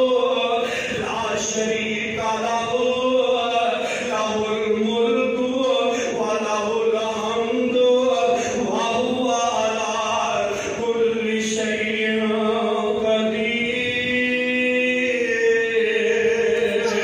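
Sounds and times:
man chanting into microphone: 0:00.0 - 0:17.0.

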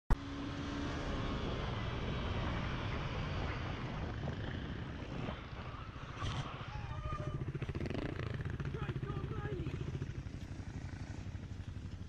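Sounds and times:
motorcycle engine: 0:00.1 - 0:12.0
wind rushing: 0:00.7 - 0:08.6.

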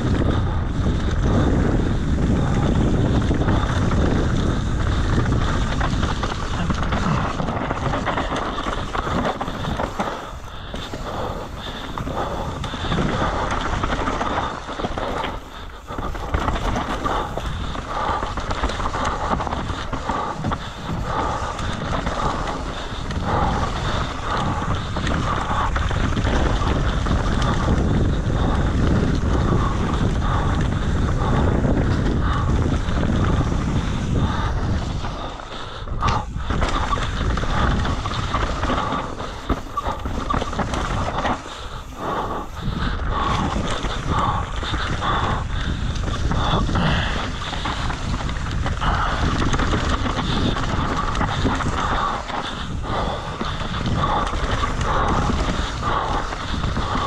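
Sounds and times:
mountain bike tyres and rattle: 0:00.0 - 0:57.0
wind buffeting microphone: 0:00.0 - 0:57.0.

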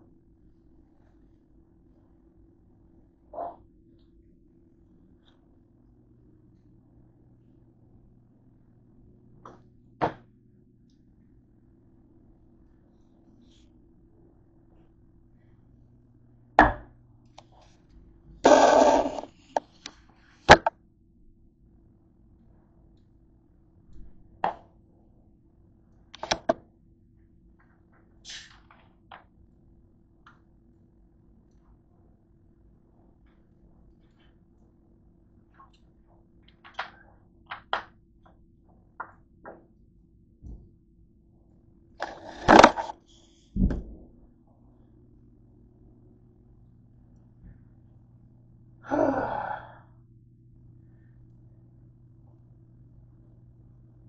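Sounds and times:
camera rubbing and scraping: 0:18.4 - 0:19.8, 0:42.0 - 0:43.4.

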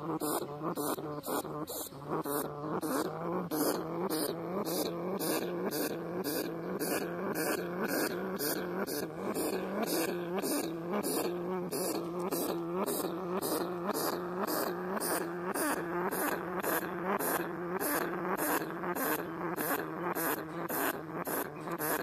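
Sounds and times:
rat hissing: 0:00.0 - 0:22.0.

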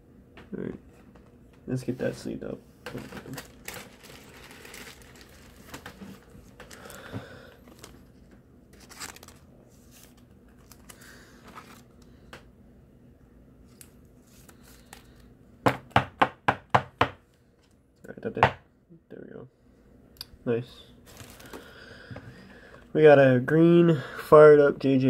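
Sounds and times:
plastic sleeve crinkling: 0:02.9 - 0:12.1, 0:21.0 - 0:21.8.

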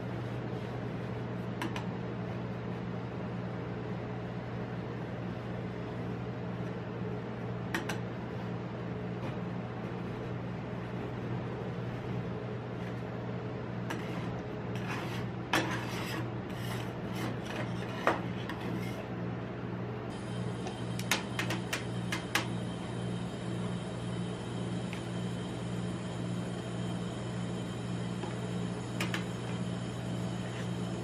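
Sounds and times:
low machine hum: 0:00.0 - 0:31.0
spatulas scraping metal plate: 0:13.9 - 0:19.0.

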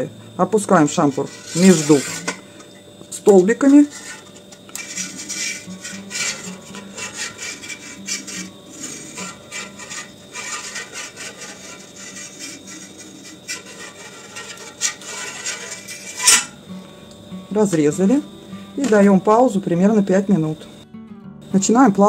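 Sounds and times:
metal skewer scraping a pot: 0:00.6 - 0:16.6.

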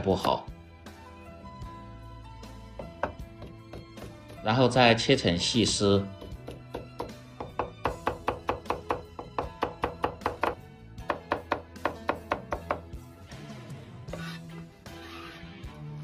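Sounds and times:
background music: 0:00.0 - 0:16.0
cleaver chopping on cutting board: 0:02.8 - 0:04.4, 0:06.2 - 0:12.8.

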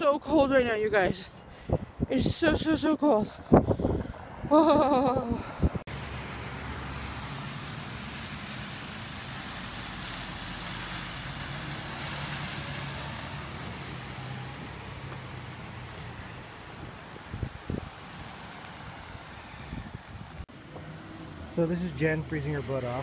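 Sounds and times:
traffic hiss on wet street: 0:05.9 - 0:23.0.

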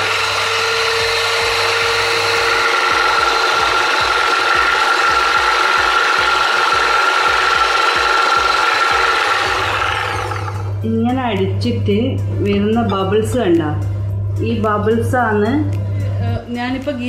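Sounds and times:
electric hand mixer whining: 0:00.0 - 0:10.8.

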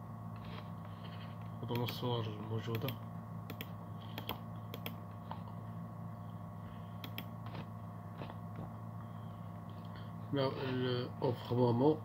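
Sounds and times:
low electrical hum: 0:00.0 - 0:12.0
computer mouse clicking: 0:01.7 - 0:02.0, 0:02.7 - 0:05.0, 0:07.0 - 0:07.7.

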